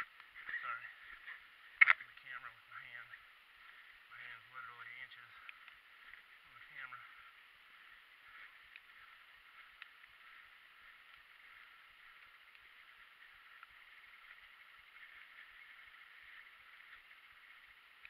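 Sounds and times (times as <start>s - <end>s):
faint steady hiss: 0.0s - 18.0s
light ticks: 4.9s - 18.0s.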